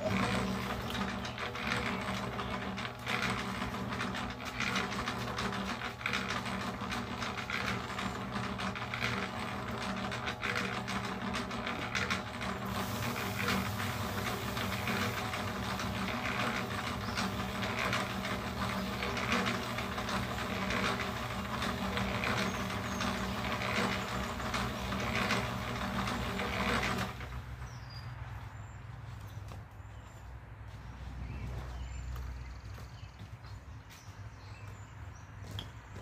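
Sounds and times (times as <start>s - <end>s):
cement mixer motor hum: 0.0s - 28.0s.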